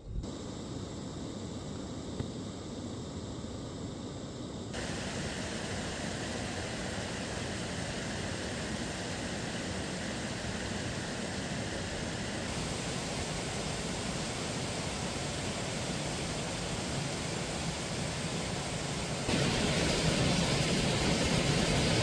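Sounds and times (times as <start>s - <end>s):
mountain stream and waterfall rushing: 4.8s - 22.0s.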